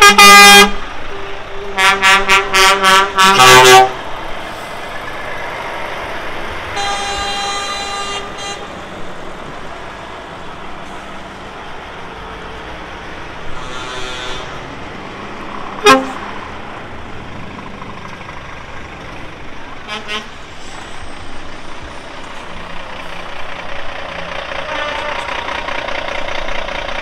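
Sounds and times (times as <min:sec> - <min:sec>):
truck horn blasts: 0:00.0 - 0:04.0, 0:06.7 - 0:08.9, 0:13.5 - 0:14.7, 0:15.8 - 0:16.2, 0:19.8 - 0:20.4, 0:24.6 - 0:25.4
truck engines running: 0:00.0 - 0:27.0.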